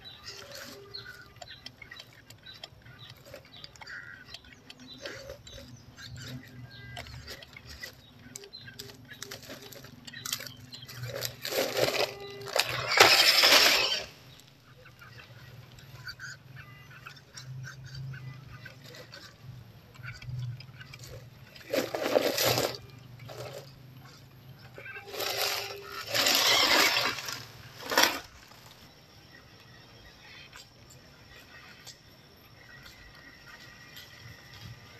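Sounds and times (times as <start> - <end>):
dry leaves crackling and rustling: 0.0 - 1.3, 5.0 - 14.5, 21.0 - 23.7, 25.0 - 28.9.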